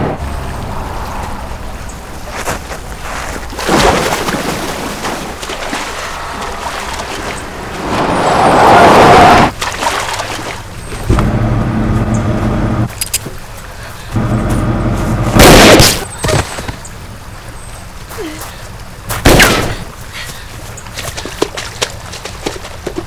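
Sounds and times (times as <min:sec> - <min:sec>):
engine running with low rumble: 0:00.0 - 0:03.6, 0:05.3 - 0:23.0
loud rush of noise: 0:05.9 - 0:09.5.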